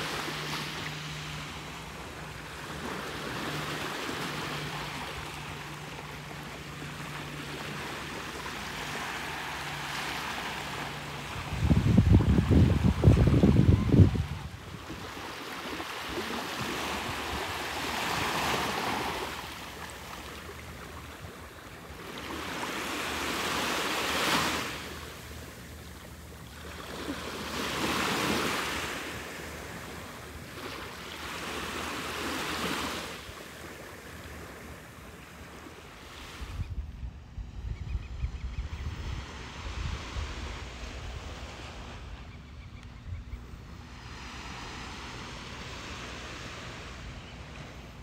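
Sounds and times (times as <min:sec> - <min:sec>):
small waves breaking on sand: 0:00.0 - 0:36.6, 0:43.6 - 0:48.0
wind buffeting microphone: 0:11.3 - 0:15.2.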